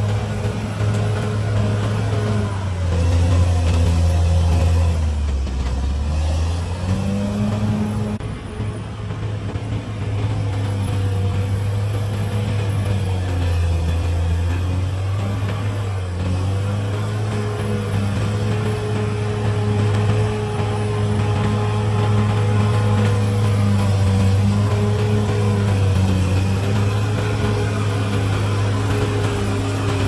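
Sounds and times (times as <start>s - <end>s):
bulldozer diesel engine running: 0.0s - 30.0s.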